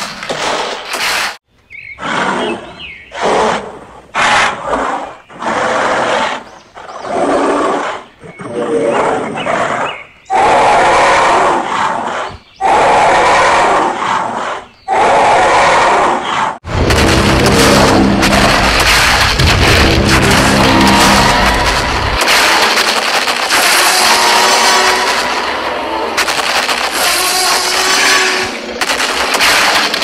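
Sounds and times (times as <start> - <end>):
dinosaur roars: 7.0 - 22.2.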